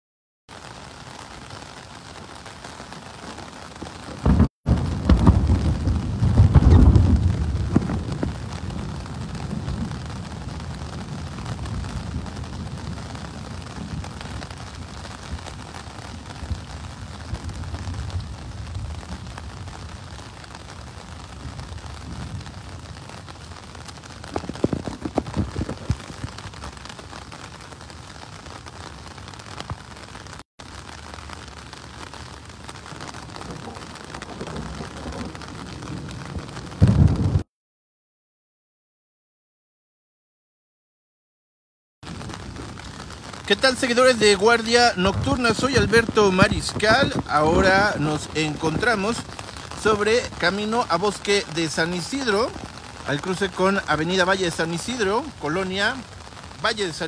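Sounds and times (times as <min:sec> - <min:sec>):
heavy rain falling: 0:00.5 - 0:37.5, 0:42.0 - 0:57.0
low rumble of thunder: 0:04.2 - 0:27.9, 0:32.3 - 0:37.4, 0:42.1 - 0:53.0.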